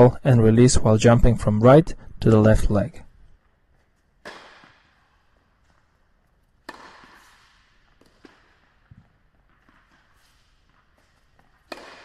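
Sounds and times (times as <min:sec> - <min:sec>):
tennis racket striking ball: 0:04.2 - 0:12.0.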